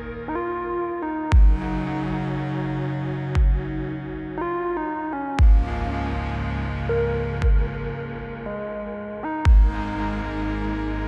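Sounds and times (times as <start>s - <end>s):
synth chords: 0.0s - 11.0s
deep bass hit: 1.3s - 4.3s, 5.4s - 8.5s, 9.5s - 11.0s.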